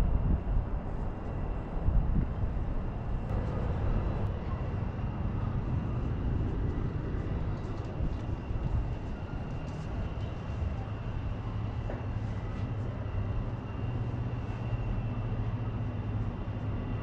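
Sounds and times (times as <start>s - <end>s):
distant city traffic rumble: 0.0s - 17.0s
wind buffeting microphone: 0.0s - 17.0s.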